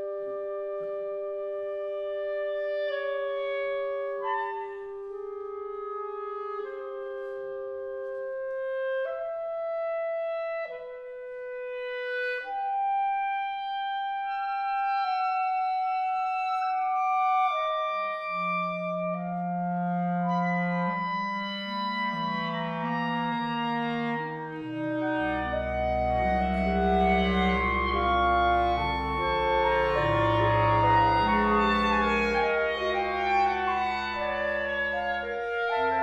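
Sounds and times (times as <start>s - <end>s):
clarinet choir playing chords: 0.0s - 36.0s.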